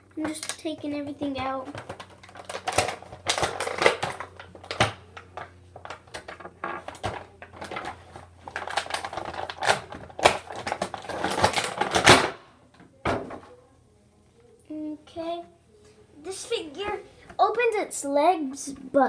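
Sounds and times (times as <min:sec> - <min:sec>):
plastic packaging crinkling: 0:01.7 - 0:12.4.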